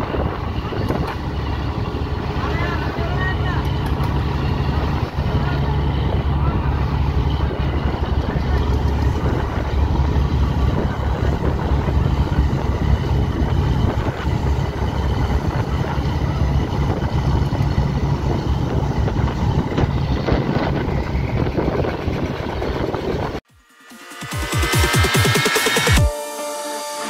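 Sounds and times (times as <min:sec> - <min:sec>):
boat engine drone: 0:00.0 - 0:23.4
wind noise: 0:00.0 - 0:23.4.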